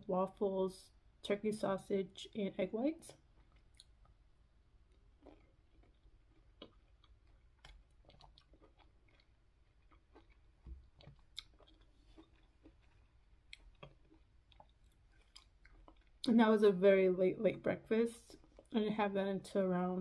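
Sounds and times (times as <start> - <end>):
faint chewing of soft fruit: 3.1 - 16.4, 18.2 - 18.8.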